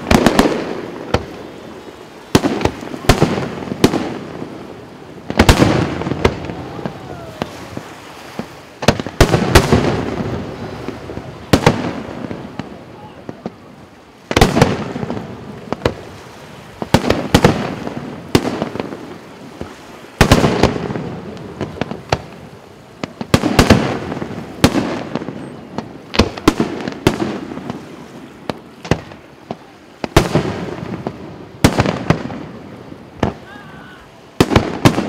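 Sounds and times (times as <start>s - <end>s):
firework shells bursting with bangs: 23.0s - 32.5s.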